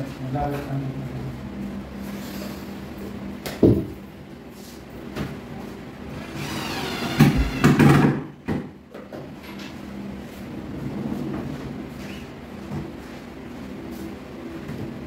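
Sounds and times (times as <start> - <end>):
knocks and thuds of panels: 7.1 - 8.8.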